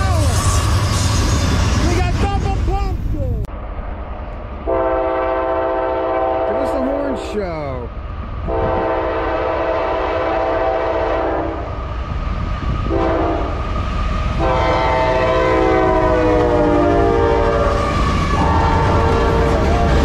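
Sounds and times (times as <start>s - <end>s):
train rumble: 0.0s - 20.0s
locomotive air horn blasts: 4.7s - 6.8s, 8.5s - 11.6s, 12.8s - 13.6s, 14.4s - 17.7s, 18.3s - 19.8s.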